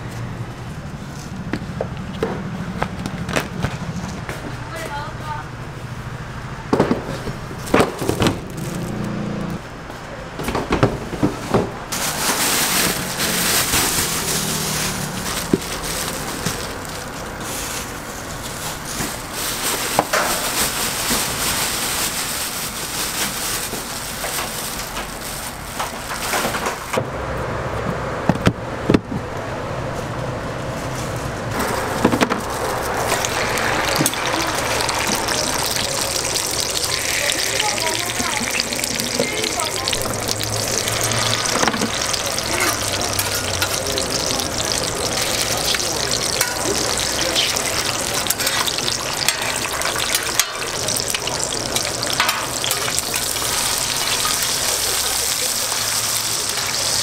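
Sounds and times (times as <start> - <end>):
steady background noise: 0.0 - 57.0
plastic bags rustling: 11.9 - 26.9, 30.7 - 57.0.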